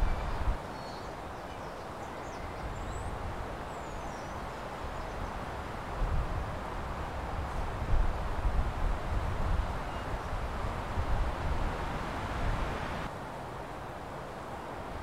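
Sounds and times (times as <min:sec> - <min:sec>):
faint bird chirps: 0:00.0 - 0:03.1.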